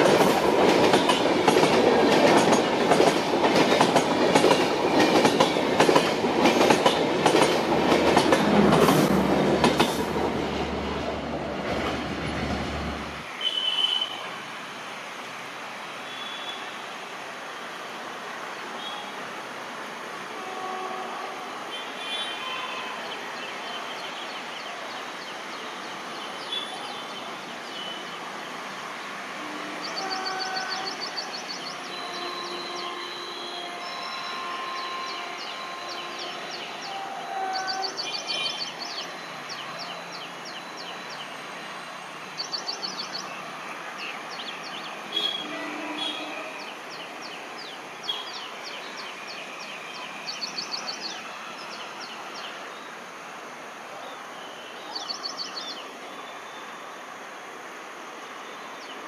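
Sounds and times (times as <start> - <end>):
steady background hiss: 12.8 - 59.0.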